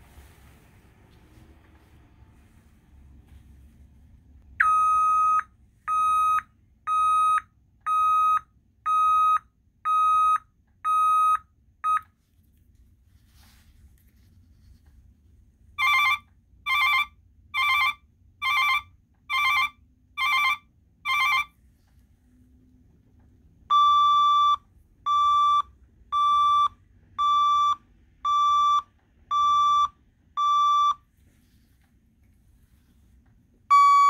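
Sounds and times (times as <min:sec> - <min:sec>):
clean backup alarm beeps: 0:04.6 - 0:12.1, 0:23.7 - 0:31.0, 0:33.7 - 0:34.0
harsh buzzy backup alarm beeps: 0:04.6 - 0:12.1, 0:23.7 - 0:31.0, 0:33.7 - 0:34.0.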